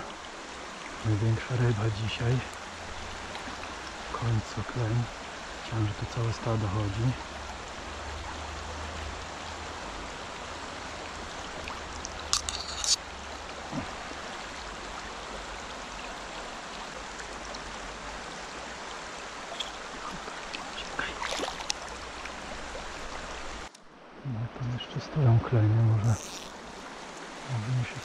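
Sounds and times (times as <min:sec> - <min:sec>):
stream running over stones: 0:00.0 - 0:24.0, 0:24.7 - 0:28.0.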